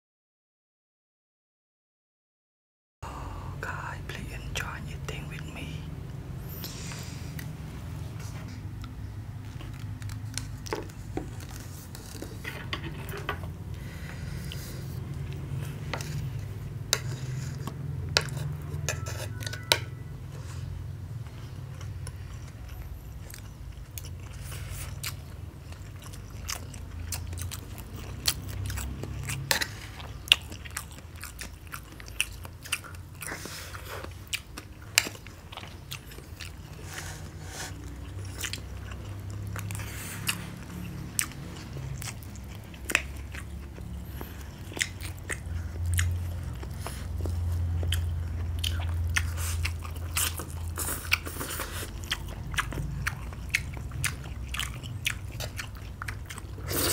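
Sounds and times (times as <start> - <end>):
people chewing food: 3.0 - 56.9
metal spoons scraping ceramic plates: 18.2 - 20.0.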